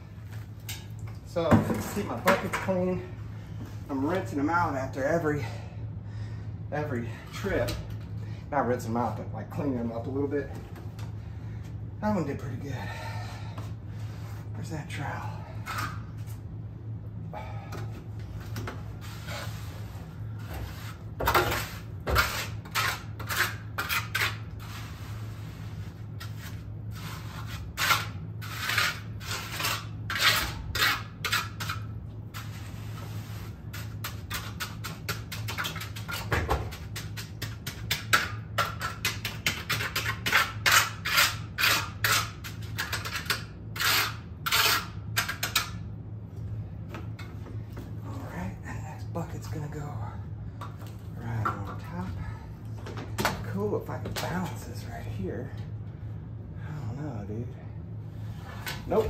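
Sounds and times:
steady low hum: 0.0 - 59.0
trowel scraping concrete: 19.0 - 45.7.

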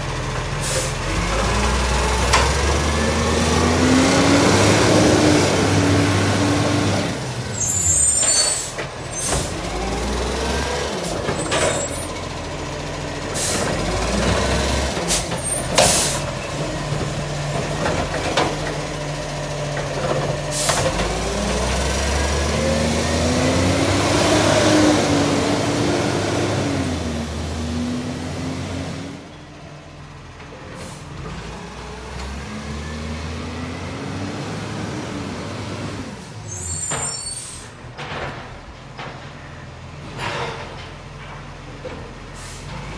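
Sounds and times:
diesel engine revving: 0.0 - 39.2, 42.1 - 42.9
air brake hisses: 0.6 - 1.0, 15.1 - 16.3, 42.4 - 42.7.

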